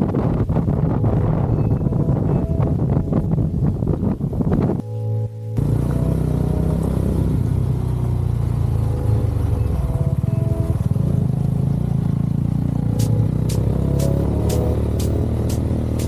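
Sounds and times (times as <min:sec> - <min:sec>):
motorcycle engine running: 0:05.6 - 0:16.0.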